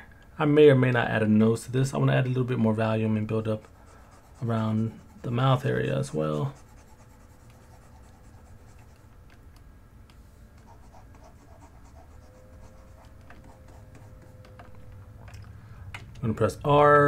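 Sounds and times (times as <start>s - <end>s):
faint low hum: 0.0s - 17.0s
stylus scratching on a tablet: 3.3s - 9.2s, 10.6s - 14.8s.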